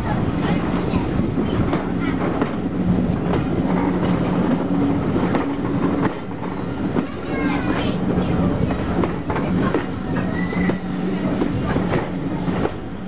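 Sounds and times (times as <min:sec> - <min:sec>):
train coaches rolling drone: 0:00.0 - 0:13.0
wheels clicking over rail joints: 0:00.0 - 0:13.0.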